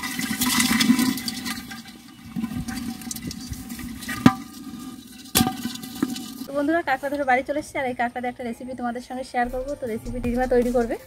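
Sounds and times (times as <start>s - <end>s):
crabs scrabbling in plastic tub: 0.0s - 6.5s.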